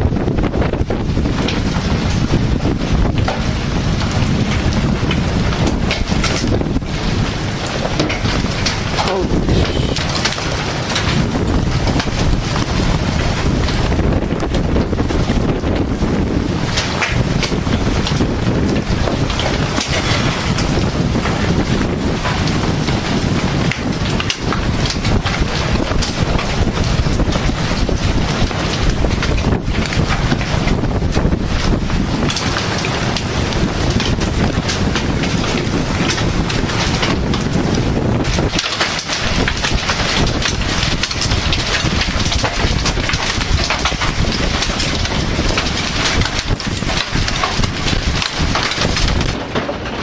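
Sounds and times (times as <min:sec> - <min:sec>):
hiss of rain or hail: 0:00.0 - 0:50.0
storm wind buffeting microphone: 0:00.0 - 0:50.0.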